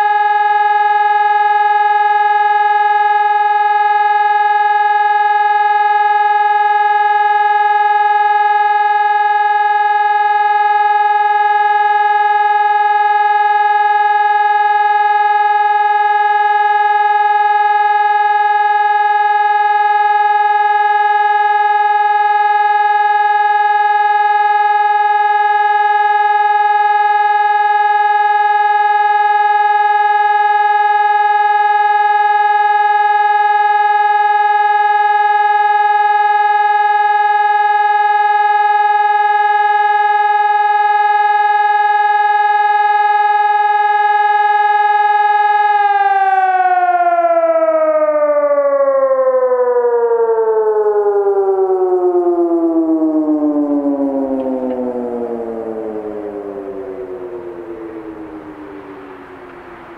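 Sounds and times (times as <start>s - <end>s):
civil defence siren steady tone: 0.0s - 59.9s.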